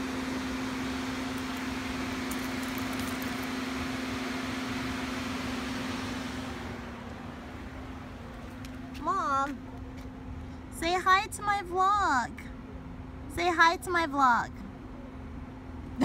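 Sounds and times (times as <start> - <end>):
car engine idling: 0.0 - 11.0
air conditioning fan hissing: 0.0 - 16.0.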